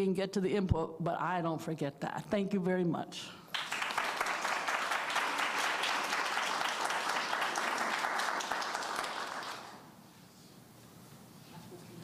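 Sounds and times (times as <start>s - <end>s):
audience applauding: 3.5s - 9.9s.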